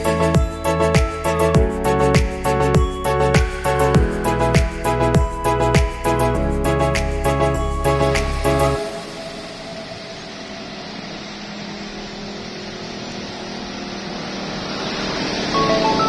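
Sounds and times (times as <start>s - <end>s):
background music: 0.0s - 11.0s, 15.5s - 16.0s
faint mechanical hum: 8.8s - 16.0s.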